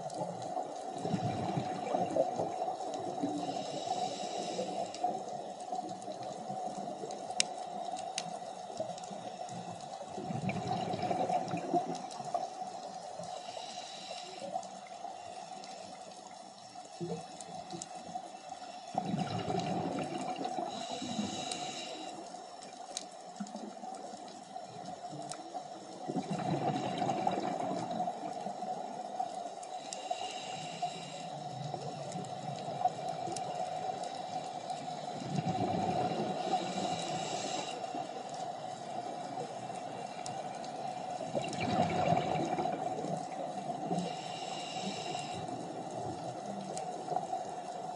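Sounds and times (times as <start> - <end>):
faint clicks: 0.0 - 47.9
hissing inhalation through regulator: 0.5 - 10.0, 10.6 - 16.1, 18.4 - 22.6, 26.2 - 47.9
bubbling exhalations underwater: 10.2 - 11.9, 26.1 - 27.9, 41.3 - 43.0.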